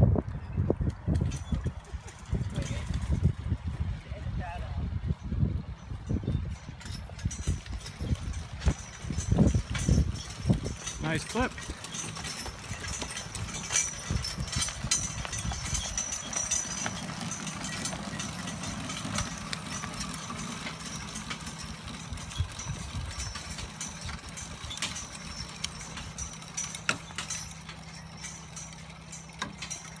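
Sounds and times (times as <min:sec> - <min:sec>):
spreader mechanical rumble: 0:00.3 - 0:30.0
hoof clops: 0:05.8 - 0:30.0
clicks and clatter: 0:06.8 - 0:30.0.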